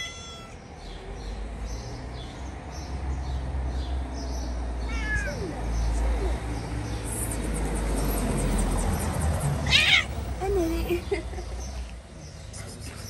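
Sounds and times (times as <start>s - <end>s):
cat meowing: 0.0s - 0.7s, 4.8s - 5.7s, 9.6s - 10.1s
small birds chirping: 0.0s - 13.0s.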